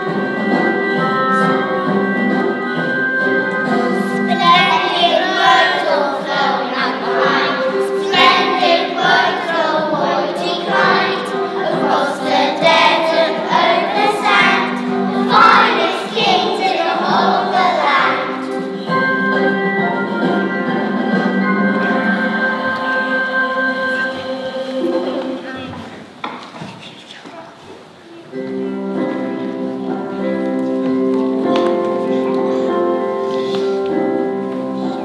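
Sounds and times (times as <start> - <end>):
children singing: 0.0 - 25.8
instrumental accompaniment: 0.0 - 26.3, 28.1 - 35.0.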